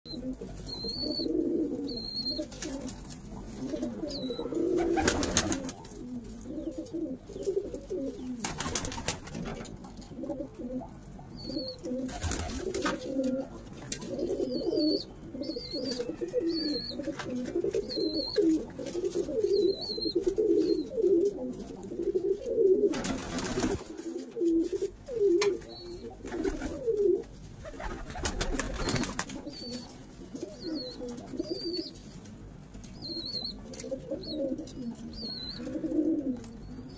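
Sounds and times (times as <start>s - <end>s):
faint high chirp: 0.1s - 2.5s, 14.3s - 17.1s, 30.5s - 32.0s
pigeons cooing: 0.1s - 32.2s, 33.0s - 36.9s.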